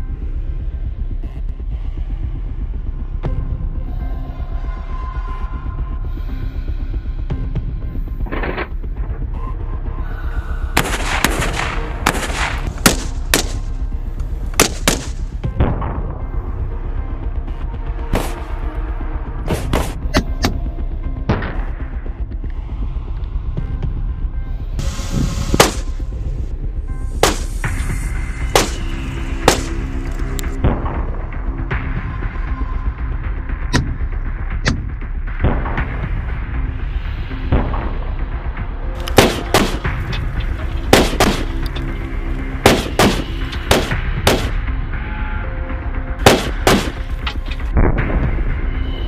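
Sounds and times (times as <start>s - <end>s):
music with deep bass: 0.0s - 49.0s
rifle shots: 10.8s - 13.6s, 14.6s - 15.2s, 25.6s - 25.9s, 28.6s - 28.8s, 29.5s - 29.8s, 39.1s - 39.9s, 40.9s - 41.6s, 42.6s - 44.6s, 46.2s - 47.2s
gunshots: 10.8s - 13.7s, 14.6s - 15.2s, 25.6s - 26.0s, 27.2s - 27.6s, 28.5s - 29.8s, 39.1s - 40.0s, 40.9s - 41.6s, 42.6s - 44.6s, 46.2s - 47.3s.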